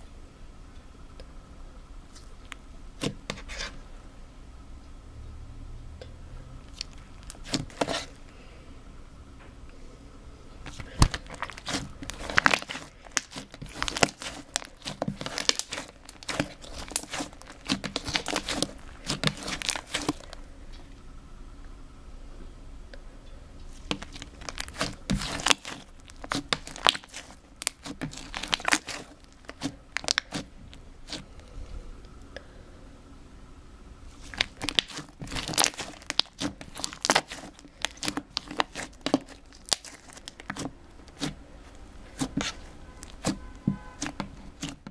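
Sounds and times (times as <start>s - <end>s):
slime crackling and popping: 6.6s - 8.1s, 10.7s - 20.5s, 23.7s - 31.4s, 34.1s - 44.9s.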